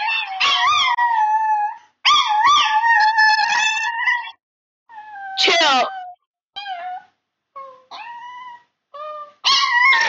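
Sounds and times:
small dog howling: 0.0s - 10.0s.

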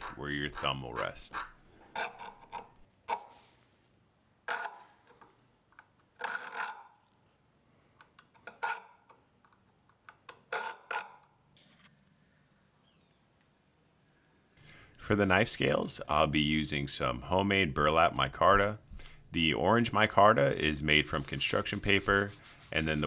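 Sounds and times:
file rasping on steel blade: 0.0s - 2.8s, 6.2s - 7.0s.

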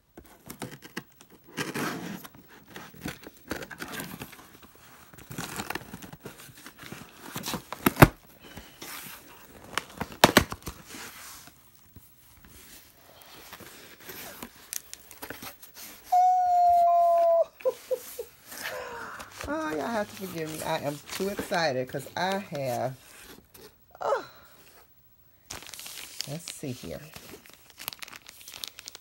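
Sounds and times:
paper and plastic crinkling: 0.2s - 23.8s, 24.6s - 29.0s
tape and paper tearing: 0.4s - 4.2s.

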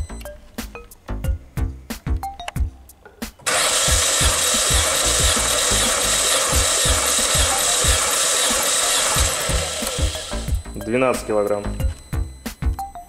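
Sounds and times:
engine cranking on starter motor: 3.5s - 10.6s.

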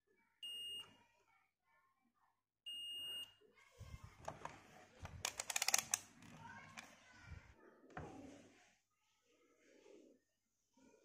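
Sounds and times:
multimeter beep: 0.4s - 0.9s, 2.7s - 3.3s.

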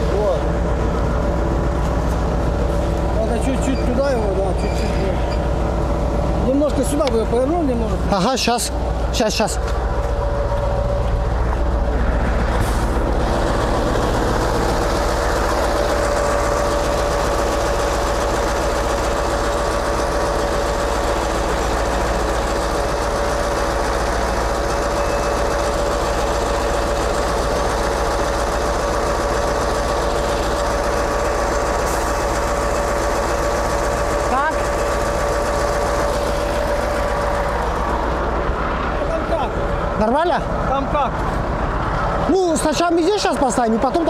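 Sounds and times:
hydraulic whine: 0.0s - 39.1s
diesel truck engine rumble: 0.0s - 44.0s.

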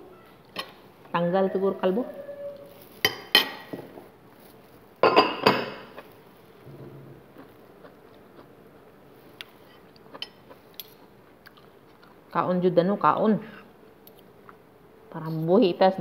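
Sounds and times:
quiet chewing: 5.9s - 12.4s, 13.6s - 14.6s.

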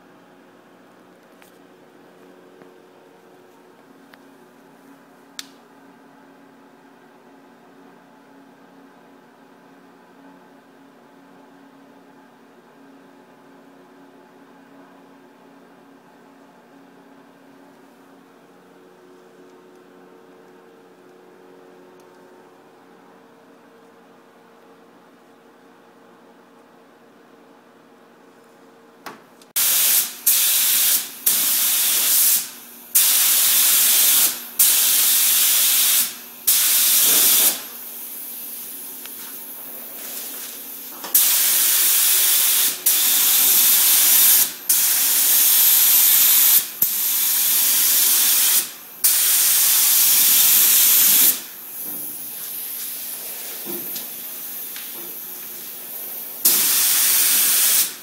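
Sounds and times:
spray gun air hissing: 29.6s - 58.0s.

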